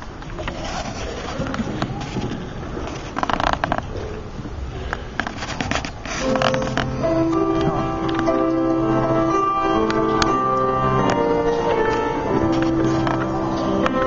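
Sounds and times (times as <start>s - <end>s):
murmur of audience: 6.2s - 14.0s
piano music: 6.2s - 14.0s.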